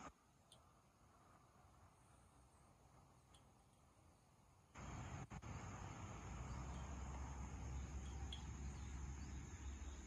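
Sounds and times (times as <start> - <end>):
crickets chirring: 3.2 - 10.0.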